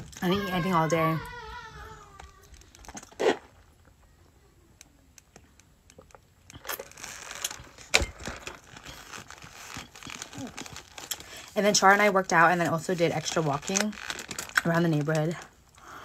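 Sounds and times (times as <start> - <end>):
paper and plastic wrapping crinkling: 0.0 - 3.6, 6.6 - 15.6.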